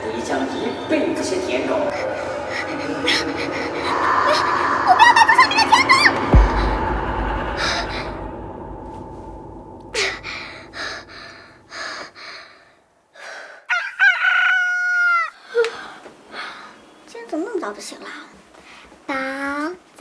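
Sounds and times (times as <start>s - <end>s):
rooster crowing: 1.9s - 8.8s, 13.7s - 15.4s
deep low hit: 1.9s - 11.9s.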